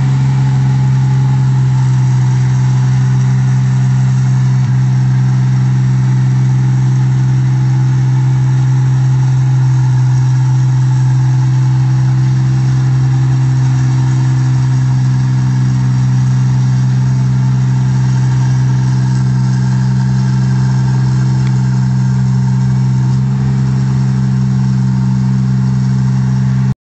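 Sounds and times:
combine harvester engine humming: 0.0 - 26.8.

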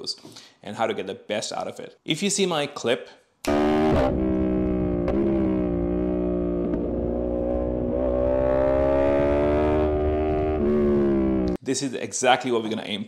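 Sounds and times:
motorcycle engine at speed: 3.5 - 11.6.

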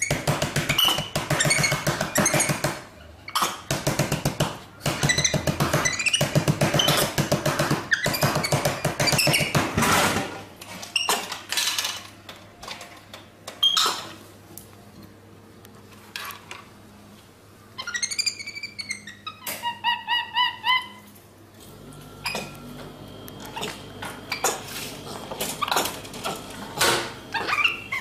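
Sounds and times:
monkey squeaking: 0.0 - 2.6, 5.0 - 7.2, 7.9 - 9.6, 17.8 - 21.1, 27.3 - 28.0.

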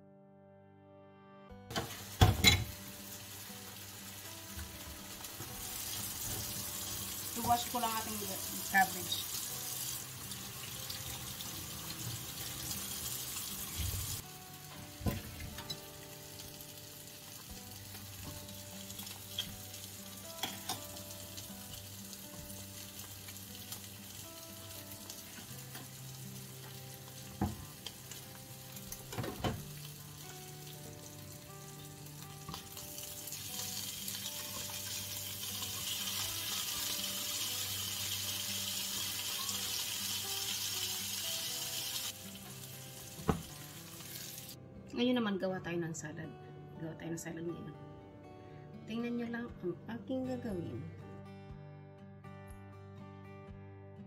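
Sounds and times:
meat sizzling in a frying pan: 1.7 - 44.6.

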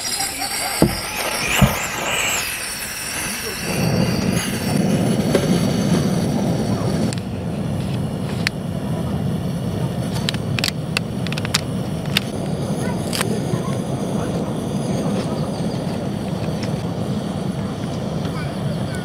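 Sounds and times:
gas stove burner roaring: 0.0 - 19.0
sharp clicks: 10.2 - 12.4.

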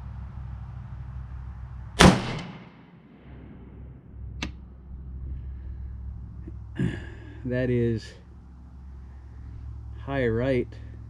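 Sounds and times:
rifle shot: 2.0 - 3.8.

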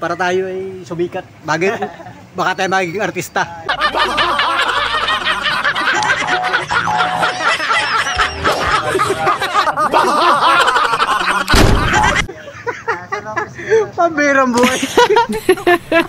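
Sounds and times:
men laughing loudly: 1.6 - 2.3, 3.6 - 13.9, 14.6 - 16.0.

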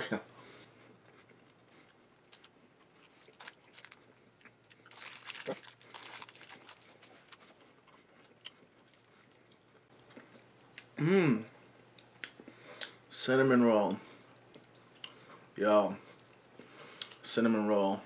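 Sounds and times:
faint chewing: 0.4 - 13.0, 14.0 - 17.2.

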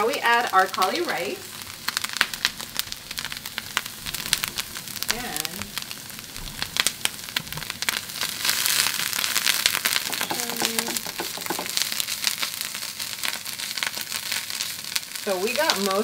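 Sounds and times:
cauliflower frying in oil: 0.0 - 16.0.

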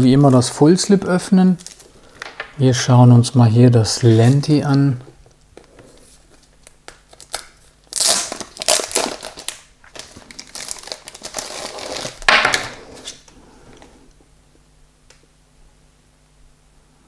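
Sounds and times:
packaging rustling: 5.6 - 13.9.

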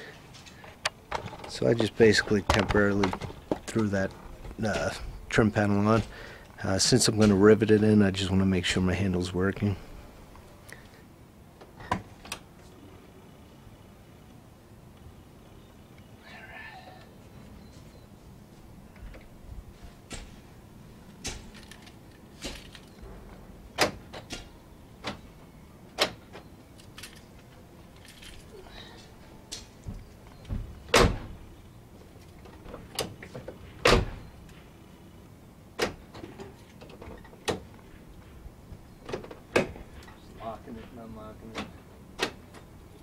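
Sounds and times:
car door thumping shut: 30.5 - 31.4.

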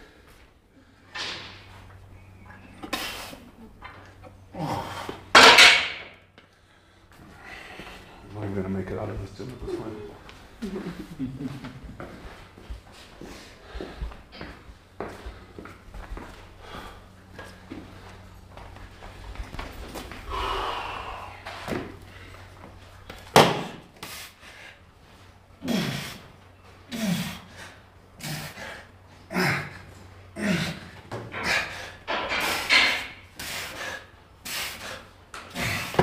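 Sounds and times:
person grunting: 20.3 - 21.6, 29.3 - 30.8.

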